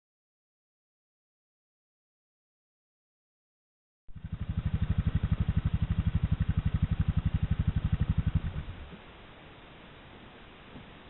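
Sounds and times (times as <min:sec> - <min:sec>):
atv engine running: 0:04.1 - 0:09.0.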